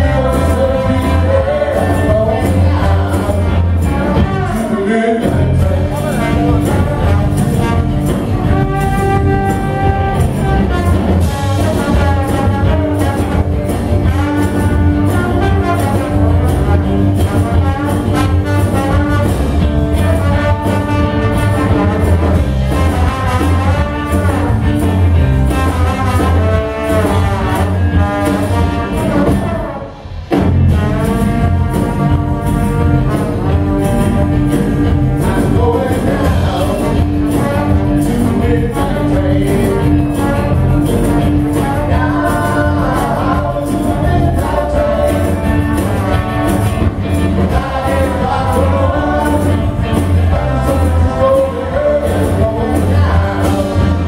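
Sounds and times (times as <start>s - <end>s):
bass guitar: 0.0s - 54.0s
drums: 0.0s - 54.0s
electric guitar: 0.0s - 54.0s
trombone: 0.0s - 54.0s.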